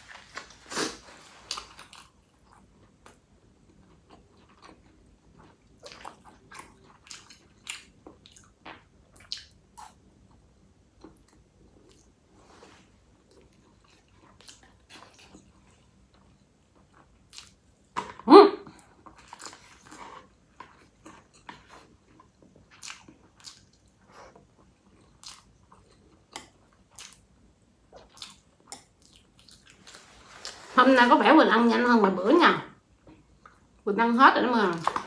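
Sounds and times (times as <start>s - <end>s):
person chewing and biting: 0.7s - 10.0s.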